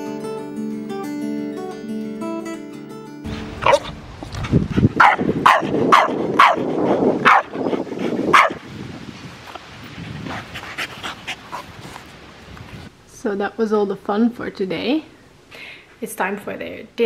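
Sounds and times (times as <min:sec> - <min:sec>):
dog barking: 0:03.6 - 0:03.9, 0:05.0 - 0:07.6, 0:08.3 - 0:08.6.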